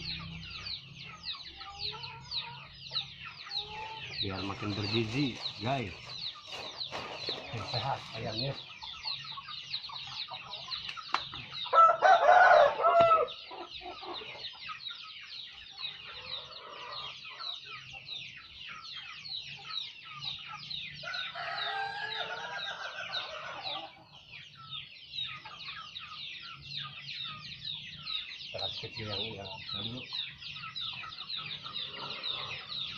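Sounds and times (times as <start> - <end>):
chicks cheeping and clucking: 0.0 - 32.9
rooster crowing: 11.7 - 13.4, 21.0 - 23.8.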